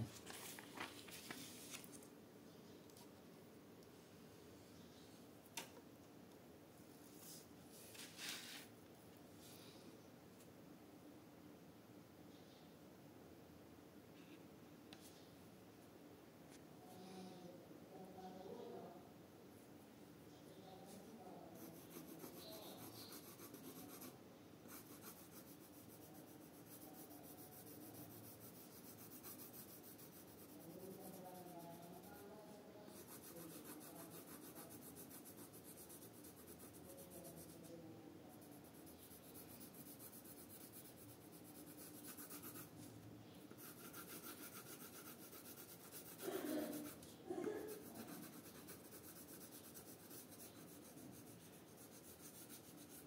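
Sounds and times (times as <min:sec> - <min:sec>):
pencil scratching on paper: 0:21.5 - 0:53.0.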